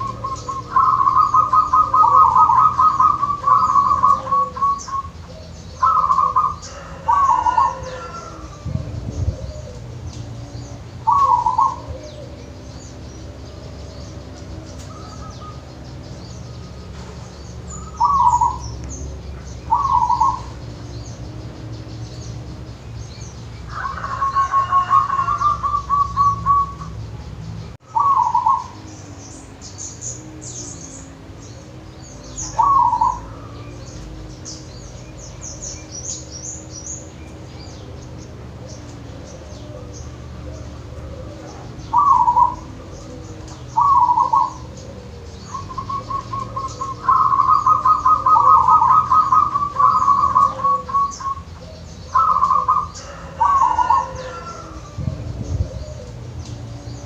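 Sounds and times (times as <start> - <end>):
dove cooing: 0.0 - 27.2, 27.8 - 57.0
faint high bird chirps: 0.0 - 39.1.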